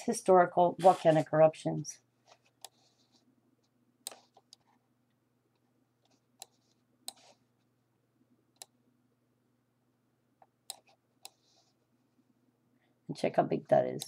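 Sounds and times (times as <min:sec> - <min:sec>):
computer mouse clicking: 0:02.5 - 0:02.9, 0:03.6 - 0:04.7, 0:06.0 - 0:07.4, 0:08.5 - 0:08.8, 0:10.6 - 0:11.5.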